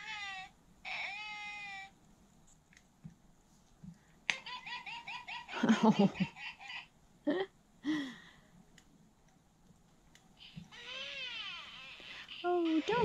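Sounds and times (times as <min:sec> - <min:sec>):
doll baby vocal sounds: 0:00.0 - 0:01.9, 0:10.7 - 0:13.0
doll recorded giggles: 0:04.3 - 0:07.5.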